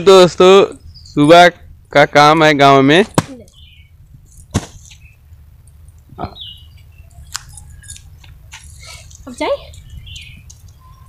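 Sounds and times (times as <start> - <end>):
faint bird chirps: 6.1 - 11.0.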